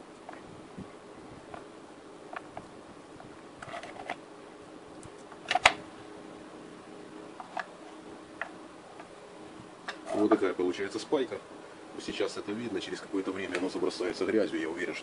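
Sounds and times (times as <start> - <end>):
electrical tape unrolling crackle: 3.6 - 4.2.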